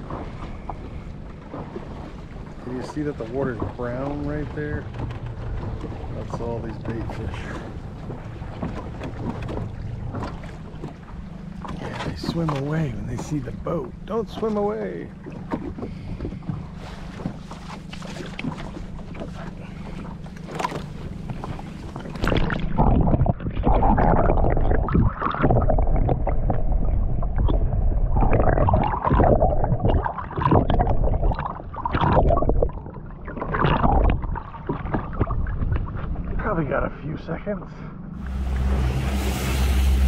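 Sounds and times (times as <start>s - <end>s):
boat engine hum: 0.0s - 40.0s
underwater rushing and sloshing water: 0.0s - 40.0s
water noise: 0.0s - 40.0s.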